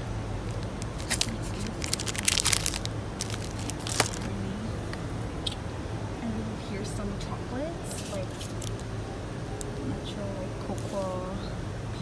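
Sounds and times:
steady low hum: 0:00.0 - 0:12.0
plastic wrapper crinkling: 0:00.5 - 0:04.4, 0:08.0 - 0:08.8.

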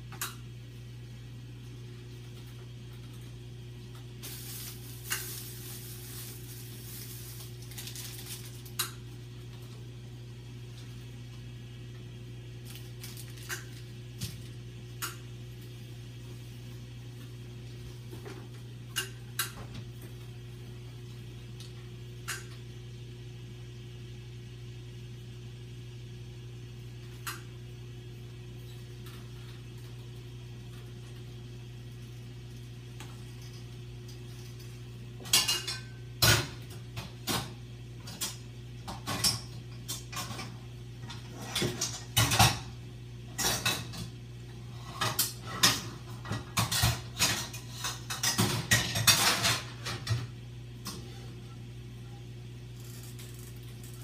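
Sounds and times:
steady low hum: 0:00.0 - 0:54.0
dishes and cutlery clattering: 0:45.0 - 0:50.3.

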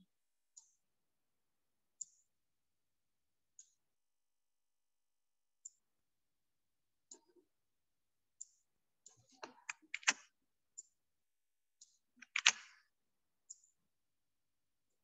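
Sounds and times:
computer mouse clicking: 0:09.1 - 0:10.3, 0:11.8 - 0:12.8.

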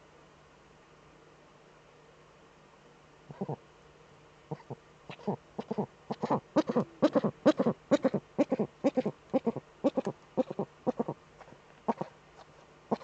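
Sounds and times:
owl cackling calls: 0:03.3 - 0:03.6, 0:04.5 - 0:12.2.

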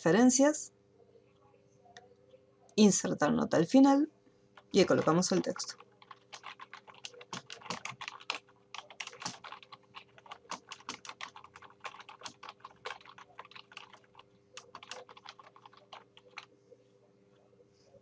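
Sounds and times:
computer keyboard typing: 0:04.6 - 0:16.5.

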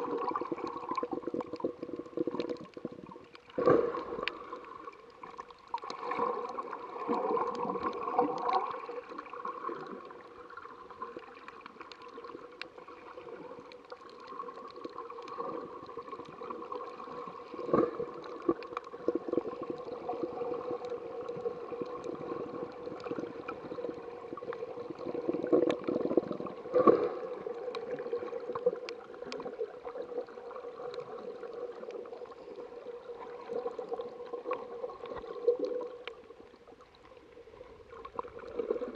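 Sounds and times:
water gurgling underwater: 0:00.0 - 0:38.9
faint clicks: 0:00.6 - 0:08.8, 0:11.1 - 0:12.8, 0:13.4 - 0:20.0, 0:20.6 - 0:30.0, 0:33.8 - 0:37.2.

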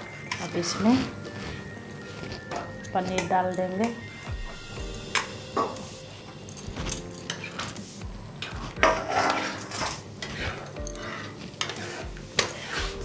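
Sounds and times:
spatula clinking and scraping pan: 0:07.0 - 0:07.8, 0:08.4 - 0:13.0.

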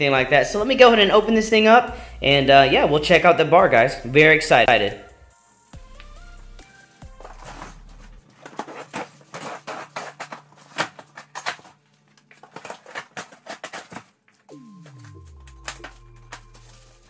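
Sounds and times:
background music: 0:00.0 - 0:10.0, 0:14.5 - 0:17.0.

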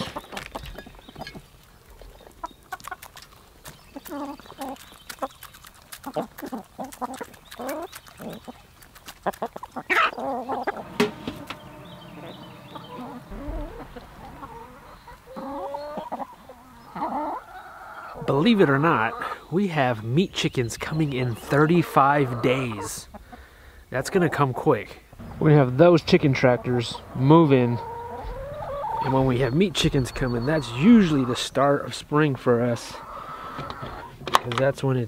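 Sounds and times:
beaks pecking: 0:00.0 - 0:24.2
hens clucking: 0:00.0 - 0:34.7.

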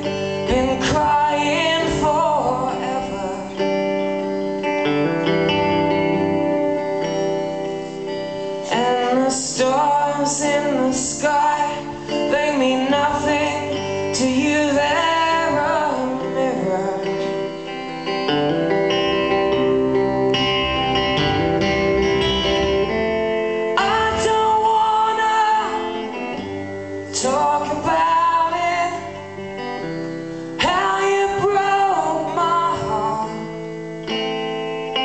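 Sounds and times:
man singing: 0:00.0 - 0:04.0, 0:08.6 - 0:17.7, 0:23.7 - 0:34.4
sustained held chords: 0:00.0 - 0:09.2, 0:13.3 - 0:31.3
electric guitar: 0:00.0 - 0:35.0.

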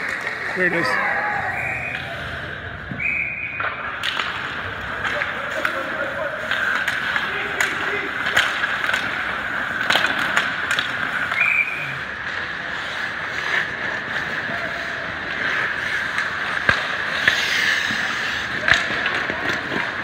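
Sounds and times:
arena hum: 0:00.0 - 0:19.6
skates scraping ice: 0:00.0 - 0:20.0
sticks clacking on puck: 0:03.6 - 0:11.6, 0:15.2 - 0:20.0.

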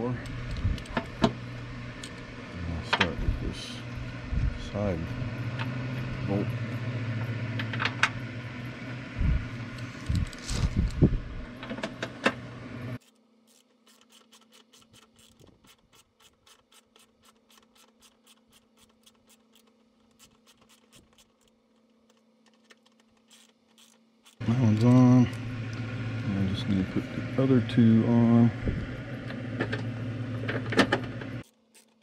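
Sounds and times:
steady low hum: 0:00.0 - 0:32.0
ratchet clicks: 0:13.0 - 0:24.4.

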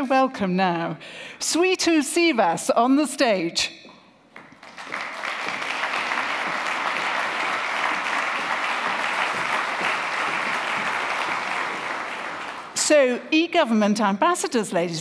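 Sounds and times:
audience applauding: 0:04.4 - 0:12.8.

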